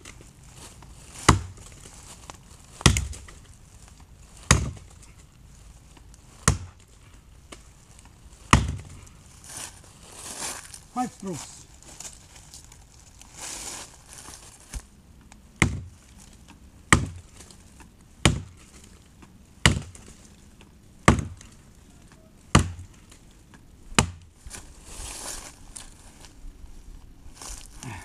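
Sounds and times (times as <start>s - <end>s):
axe chopping into log: 1.2s - 1.6s, 2.8s - 3.2s, 4.5s - 4.8s, 6.4s - 6.8s, 8.5s - 9.0s, 15.6s - 15.9s, 16.9s - 17.2s, 18.2s - 18.7s, 19.6s - 20.1s, 21.0s - 21.5s, 22.5s - 23.0s, 24.0s - 24.3s.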